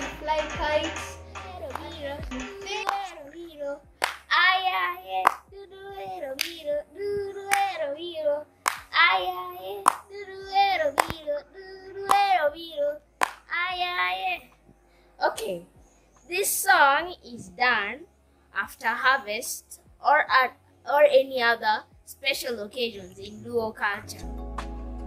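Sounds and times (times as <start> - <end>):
hand clapping: 0.0 - 3.2, 4.0 - 4.3, 5.2 - 5.5, 6.4 - 6.6, 7.5 - 7.8, 8.7 - 9.0, 9.8 - 10.0, 11.0 - 11.2, 12.1 - 12.3, 13.2 - 13.5
child singing: 0.0 - 14.6, 16.3 - 18.0.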